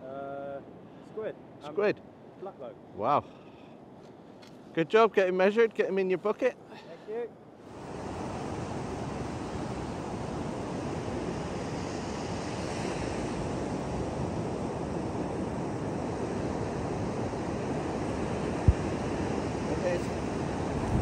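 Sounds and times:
wind on microphone: 7.8 - 21.0.

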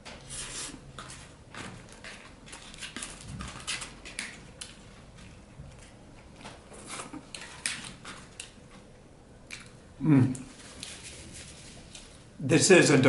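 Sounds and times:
paper wrapper crackling and rustling: 1.1 - 8.6, 10.5 - 12.2.

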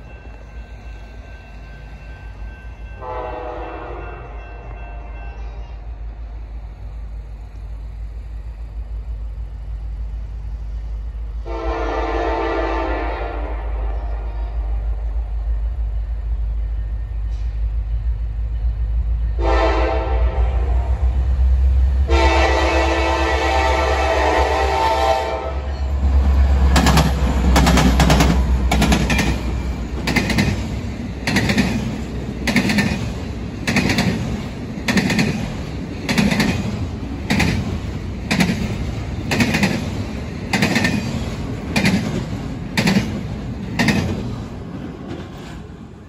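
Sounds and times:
train horn: 2.9 - 6.0, 11.4 - 15.1, 19.4 - 21.4, 22.0 - 25.9
locomotive engine rumble: 13.3 - 46.0
train wheels clacking: 25.6 - 46.0.

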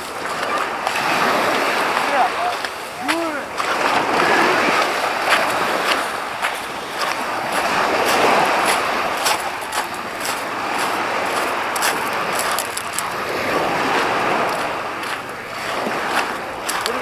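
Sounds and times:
small waves washing on shore: 0.0 - 17.0
footsteps on pebbles: 5.2 - 17.0.

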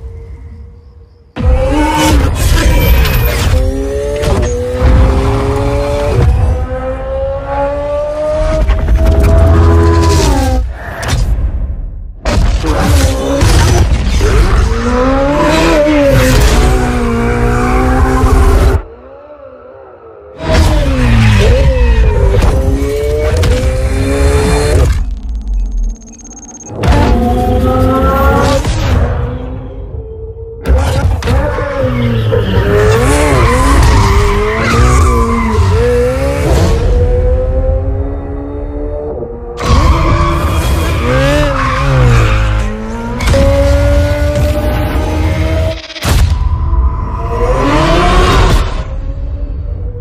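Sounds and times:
tyres squealing and skidding: 31.3 - 36.3, 39.6 - 43.2.

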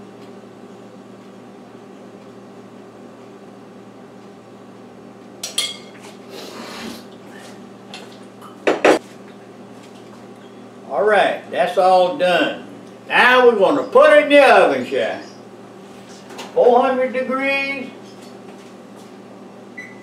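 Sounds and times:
kitchen room hum: 0.0 - 20.0
kitchenware knocks: 8.7 - 9.0.

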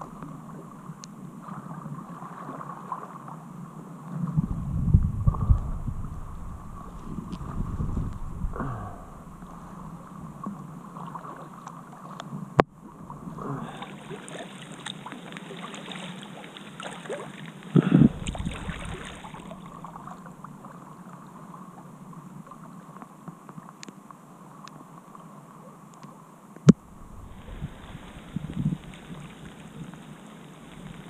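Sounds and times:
water lapping at hull: 0.0 - 31.0
paddle strokes: 4.1 - 21.6, 26.7 - 31.0.

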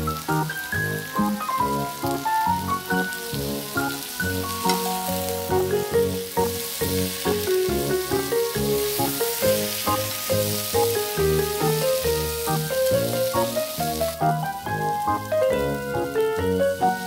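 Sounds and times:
background music with melody: 0.0 - 17.0
vegetables sizzling in a skillet: 0.0 - 17.0.

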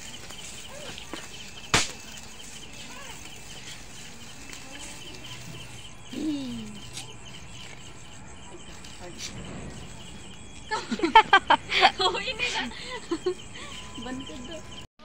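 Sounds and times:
firecracker bang: 0.0 - 2.6, 9.0 - 11.6
crickets chirping: 0.0 - 14.9.

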